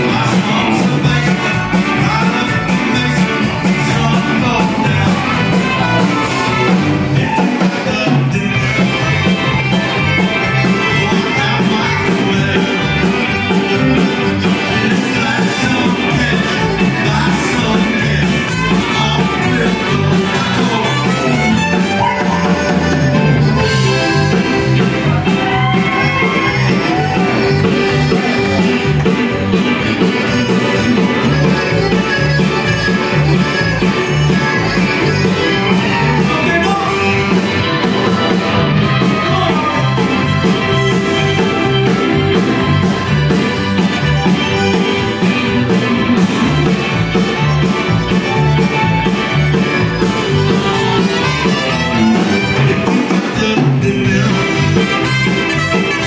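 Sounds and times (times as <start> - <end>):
accordion: 0.0 - 56.0
bass: 0.0 - 56.0
drums: 0.0 - 56.0
electric guitar: 0.0 - 56.0
keyboard: 0.0 - 56.0
trumpet: 50.3 - 52.8, 54.7 - 56.0.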